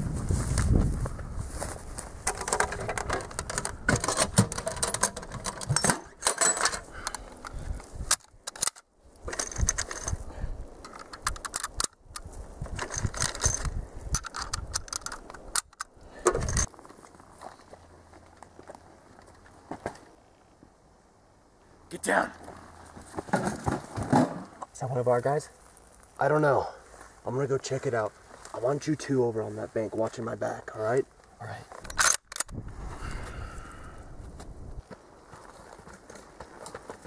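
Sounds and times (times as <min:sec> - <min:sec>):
rifle bolt clicking and rattling: 0:02.3 - 0:10.2, 0:10.8 - 0:16.7, 0:31.8 - 0:32.6.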